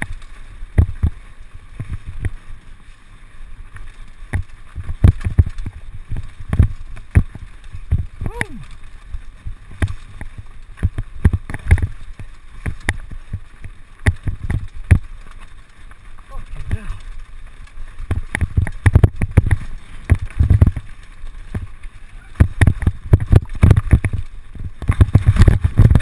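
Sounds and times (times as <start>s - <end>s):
bike rattling over stones: 0.0s - 26.0s
wind on microphone: 21.5s - 26.0s.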